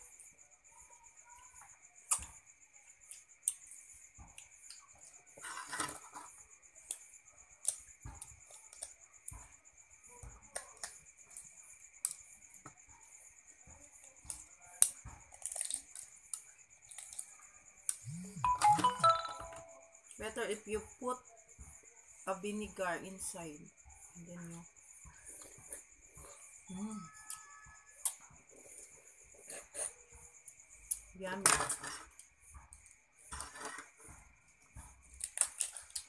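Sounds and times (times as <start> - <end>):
faint high tone: 18.1 - 20.0.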